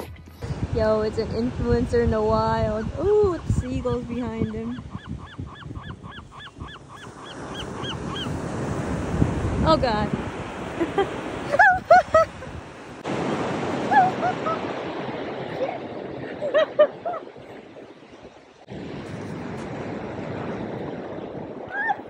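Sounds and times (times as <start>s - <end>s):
ocean surf on beach: 0.0s - 4.8s, 6.8s - 22.0s
wind: 0.0s - 22.0s
gulls calling: 2.6s - 8.9s, 10.4s - 18.6s.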